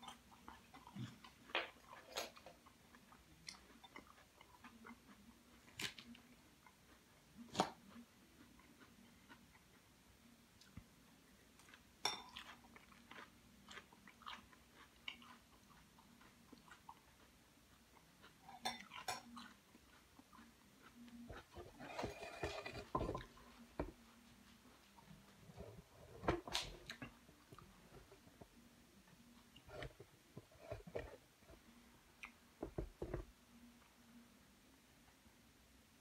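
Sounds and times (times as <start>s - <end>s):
chewing salad: 0.0s - 34.2s
fork scraping bowl: 18.4s - 19.6s, 21.2s - 23.5s, 29.6s - 31.6s.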